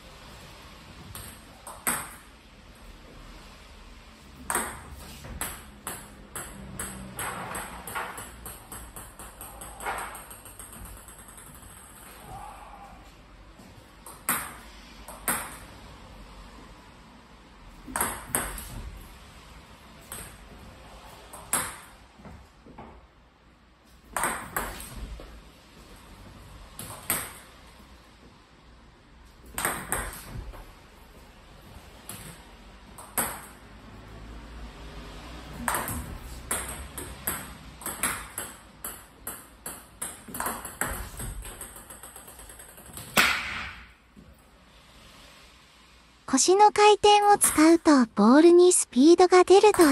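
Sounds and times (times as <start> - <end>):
ball bouncing on table: 4.4 - 12.2, 17.8 - 18.9, 35.6 - 43.8
bat striking ball: 43.1 - 43.9.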